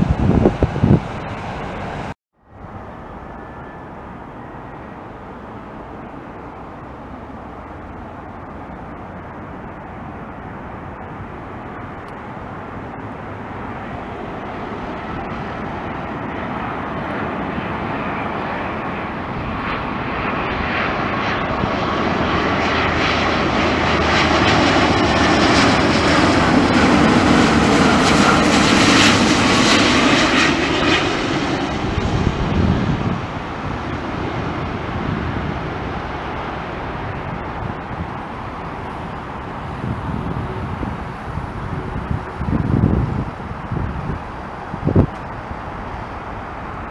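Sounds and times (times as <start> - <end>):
jet engines passing overhead: 0.0 - 46.9.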